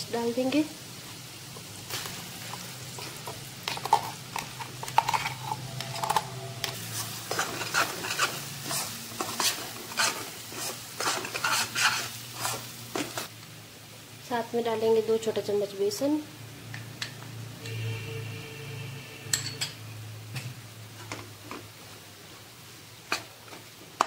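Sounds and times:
paste sizzling in hot oil: 0:00.0 - 0:13.3
metal spoon scraping pan: 0:02.4 - 0:13.2.

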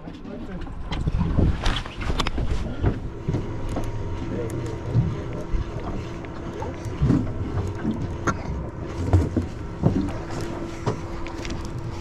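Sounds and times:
steady low hum: 0:00.0 - 0:12.0
wind on microphone: 0:00.8 - 0:03.2
water slapping against hull: 0:00.9 - 0:12.0.

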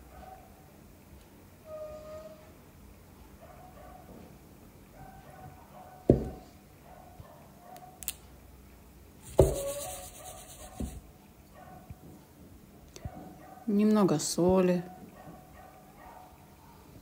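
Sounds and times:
sharp knocks of objects: 0:09.3 - 0:09.7.

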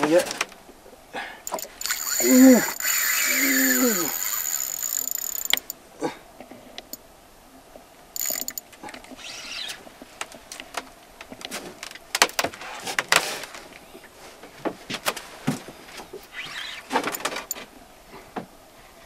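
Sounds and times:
fishing reel whirring: 0:01.5 - 0:05.8, 0:08.2 - 0:08.6
sharp clicks and knocks: 0:04.3 - 0:05.8, 0:08.2 - 0:09.1.

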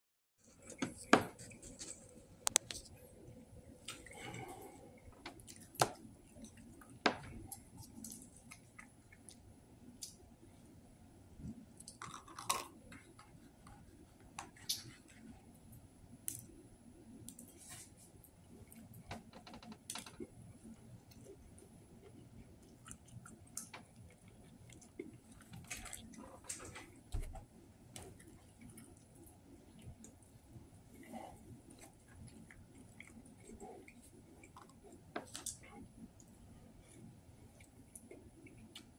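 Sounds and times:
person chewing: 0:20.7 - 0:26.9, 0:28.0 - 0:38.9.

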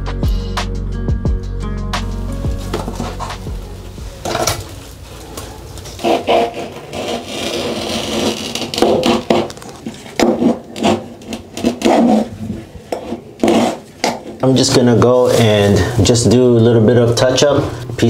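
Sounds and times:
scraper scraping caulk off metal: 0:05.8 - 0:14.4.

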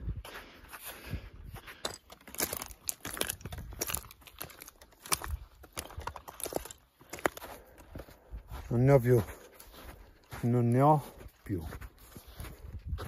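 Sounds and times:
shoes crunching over scree: 0:00.0 - 0:13.0
trekking poles clicking on stones: 0:01.6 - 0:08.0.

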